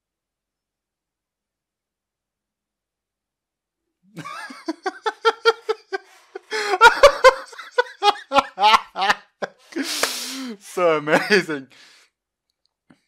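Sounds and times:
man laughing hard: 0:04.1 - 0:11.7.

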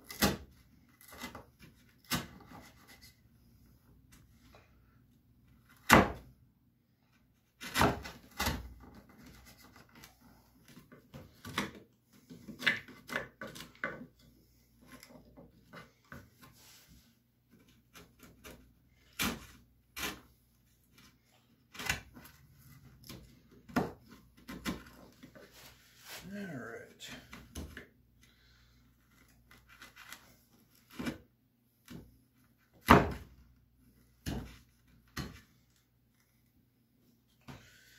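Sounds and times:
chisel scraping wood: 0:17.6 - 0:20.3.

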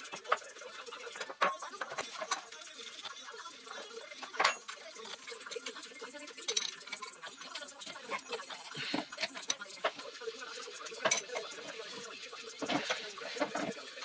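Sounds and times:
spanner clinking on metal fittings: 0:06.4 - 0:07.7, 0:11.0 - 0:11.5.

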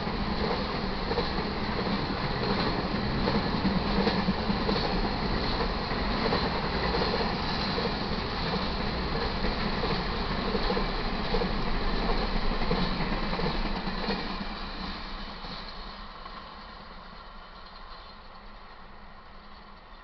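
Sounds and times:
wheels clacking on rail joints: 0:00.0 - 0:14.5
freight train rolling past: 0:00.0 - 0:20.0.

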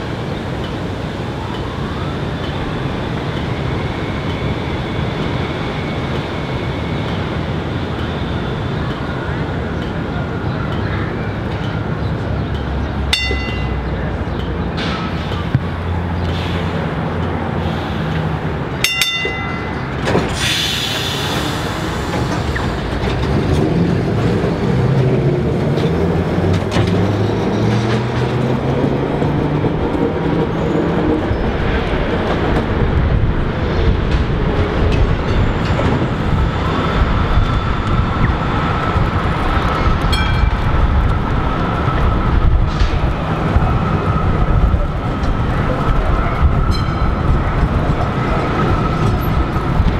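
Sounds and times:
tram motors whining: 0:00.0 - 0:49.9
tram wheels on rails: 0:00.0 - 0:49.9.

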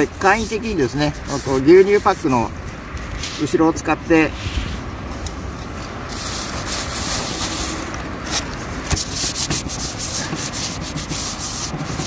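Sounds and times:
paper towels rustling: 0:06.1 - 0:12.0.

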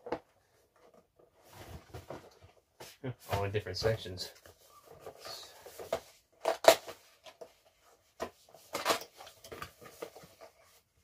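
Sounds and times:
cardboard rustling scrape: 0:01.4 - 0:02.6.

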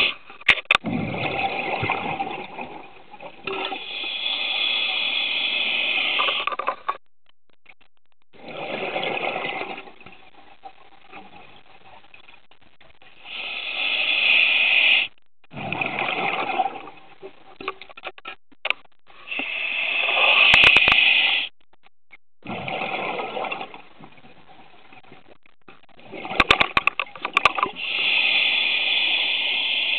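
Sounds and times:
regulator breathing underwater: 0:03.6 - 0:06.5, 0:13.2 - 0:15.1, 0:19.1 - 0:21.5, 0:27.7 - 0:29.9.

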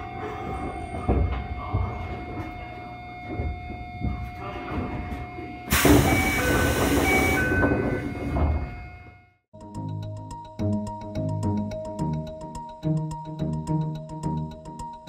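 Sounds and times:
train electrical hum: 0:00.0 - 0:09.4
air hiss of doors: 0:05.7 - 0:07.8.

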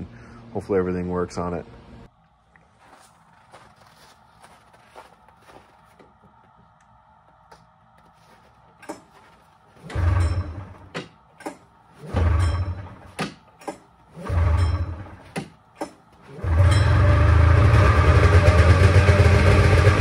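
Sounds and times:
snowmobile engine cranking: 0:08.8 - 0:20.0
recoil starter yanked: 0:09.8 - 0:17.6.

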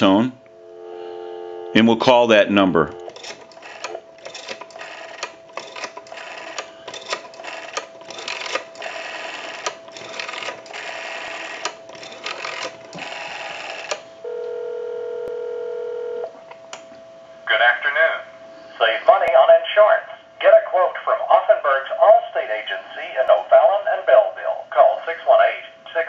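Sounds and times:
telephone ringback tone: 0:00.6 - 0:02.0, 0:02.6 - 0:16.3
rotary dial whirring and clicking: 0:02.9 - 0:14.6.

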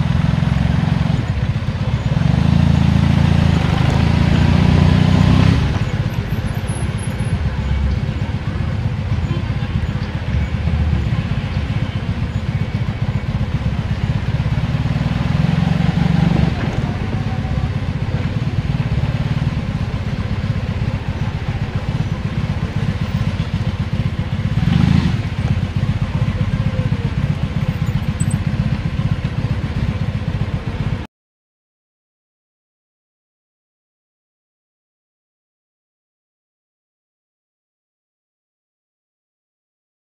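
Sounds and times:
street traffic rumble: 0:00.0 - 0:31.1.

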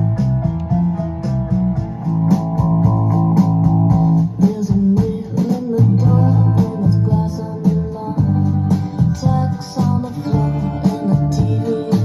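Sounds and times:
guitar music with bass and beat: 0:00.0 - 0:12.0.

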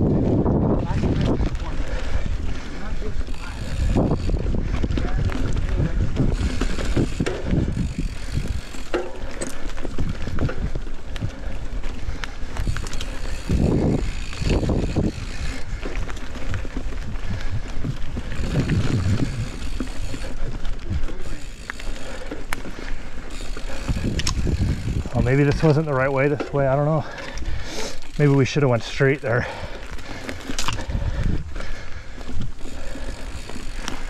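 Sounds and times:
bike rattling: 0:00.0 - 0:34.0
bike tyres rolling over dirt: 0:00.0 - 0:34.0
low rumbles: 0:00.0 - 0:34.0
sharp clicks: 0:23.6 - 0:24.5.

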